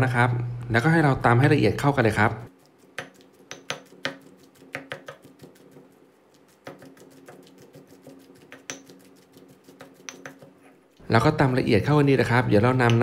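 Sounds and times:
pestle pounding in stone mortar: 2.9s - 10.6s.

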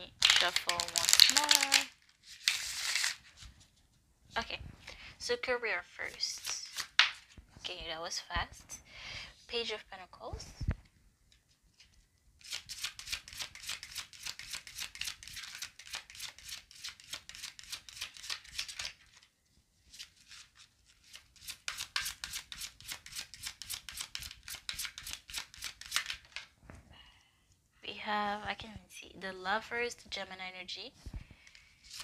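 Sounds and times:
cards being shuffled: 0.2s - 3.8s, 6.1s - 7.5s, 11.3s - 19.3s, 19.9s - 26.6s, 31.1s - 32.0s.

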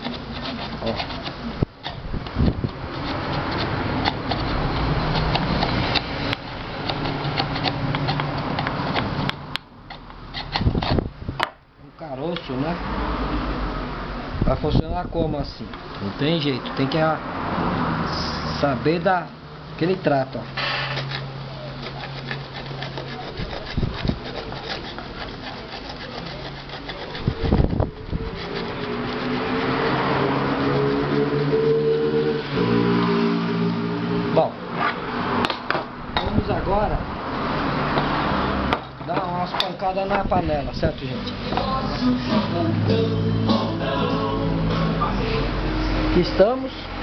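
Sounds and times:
hand file rasping on metal rim: 0.0s - 9.3s, 9.9s - 11.0s, 20.5s - 32.0s.

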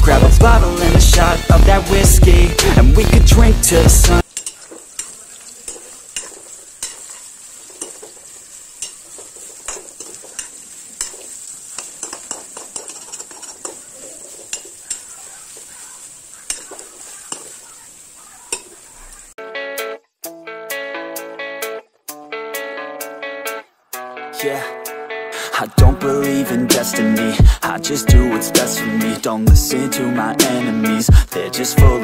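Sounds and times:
food sizzling in hot oil: 3.7s - 19.4s, 28.3s - 32.0s
spatula scraping and tapping pan: 4.2s - 17.8s, 18.5s - 18.8s
plucked guitar music: 19.4s - 32.0s.

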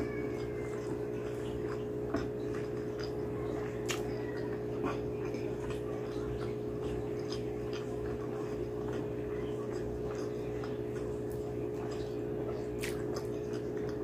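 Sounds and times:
chewing: 0.0s - 14.0s
low electrical hum: 0.0s - 14.0s
wet mouth clicks and smacks: 3.8s - 4.1s, 12.8s - 14.0s.

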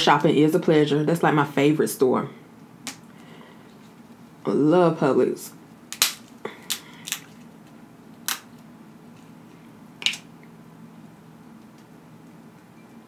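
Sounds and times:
faint low hum: 0.0s - 13.0s
crab shell cracking: 5.9s - 8.6s.

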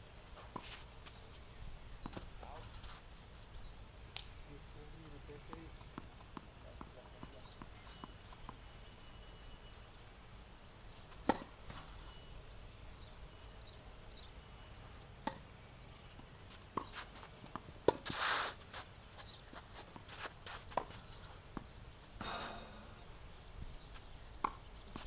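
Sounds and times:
tennis ball knocks: 11.2s - 11.6s.

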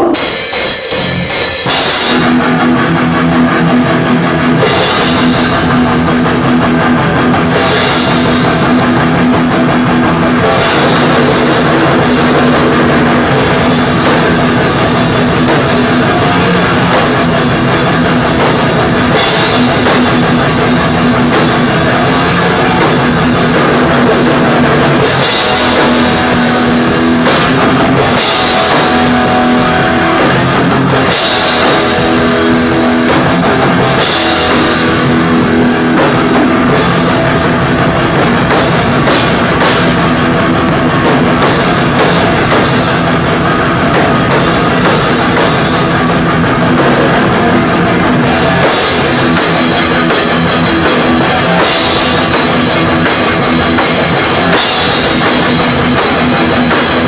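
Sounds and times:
cymbal crashes: 0.0s - 2.8s
distorted electric guitars: 0.0s - 57.0s
fast drumming: 0.0s - 57.0s.

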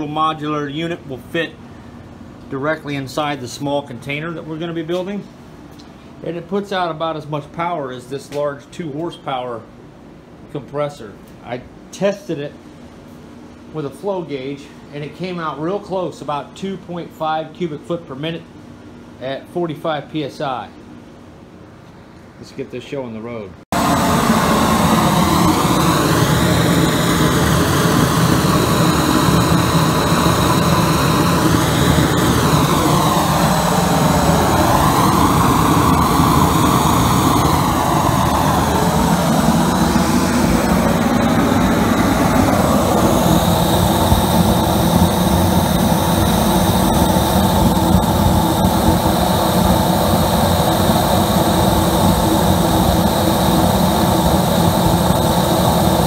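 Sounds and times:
air compressor running: 23.7s - 56.0s
burner flame roaring: 23.7s - 56.0s.

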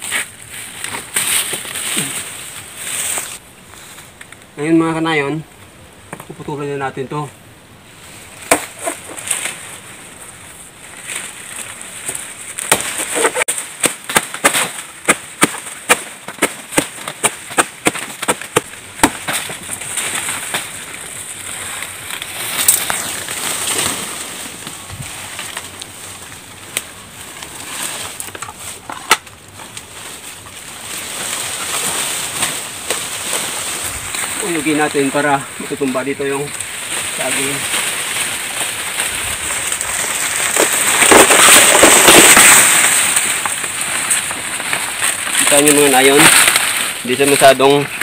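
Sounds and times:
leaves rustling: 0.0s - 48.0s
machete chopping plant trunk: 8.4s - 9.6s, 12.6s - 20.8s, 40.0s - 44.1s.

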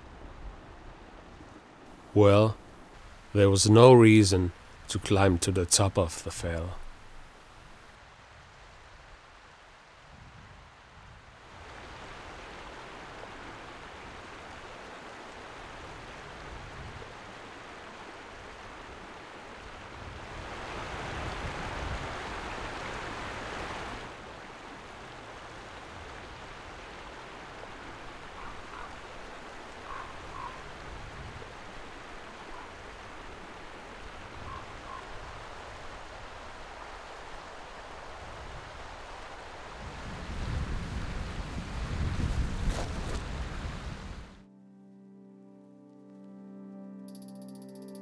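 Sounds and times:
stream running over rocks: 1.9s - 7.9s, 11.4s - 43.6s.

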